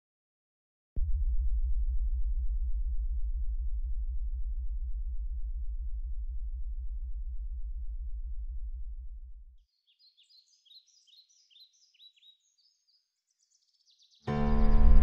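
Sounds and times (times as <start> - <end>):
deep bass drone: 1.0 - 9.6, 14.3 - 15.0.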